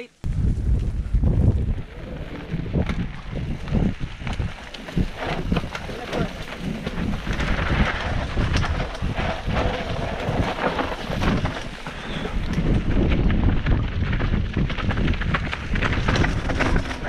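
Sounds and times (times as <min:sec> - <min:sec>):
tyres crunching on dirt trail: 0:00.2 - 0:17.0
wind buffeting microphone: 0:00.2 - 0:17.0
bike clattering over bumps: 0:00.8 - 0:17.0.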